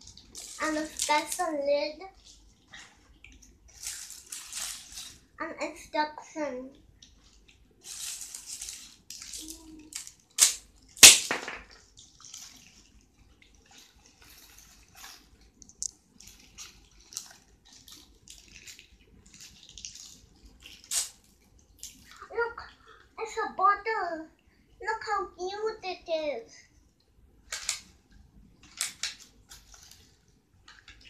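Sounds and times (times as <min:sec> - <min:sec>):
plastic packaging crinkling: 0:00.0 - 0:05.4, 0:07.0 - 0:22.2, 0:28.6 - 0:31.0.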